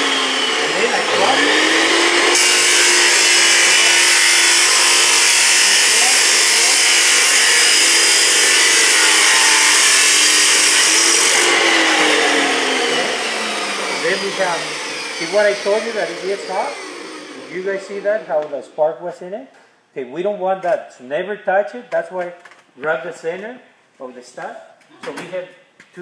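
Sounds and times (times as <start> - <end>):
chop saw motor running: 0.0 - 17.7
cut-off wheel grinding metal: 0.0 - 17.7.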